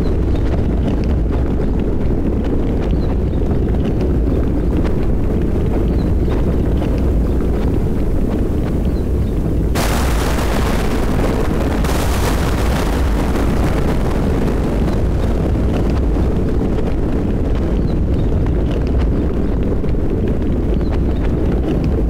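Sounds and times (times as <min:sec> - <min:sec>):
deep thunder rumble: 0:00.0 - 0:22.0
thunderclap: 0:09.4 - 0:19.8.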